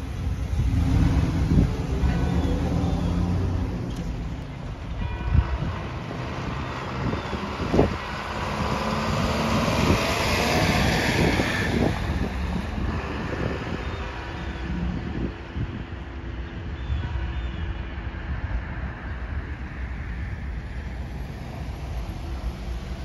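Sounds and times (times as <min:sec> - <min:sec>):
truck driving past: 0:00.0 - 0:15.3.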